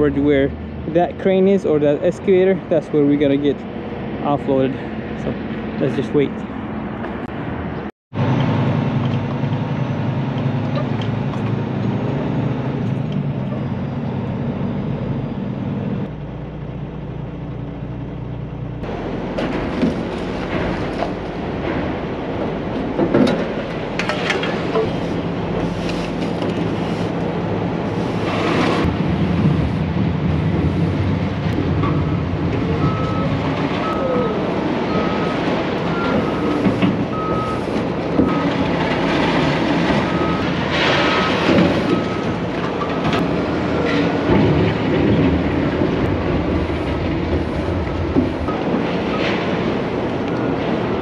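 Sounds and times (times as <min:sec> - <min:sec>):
heavy diesel machinery running: 0:08.1 - 0:51.0
scrap metal clanks and crashes: 0:19.3 - 0:27.2, 0:35.9 - 0:50.0
vehicle reverse alarm beeping: 0:31.8 - 0:38.6, 0:40.0 - 0:42.4.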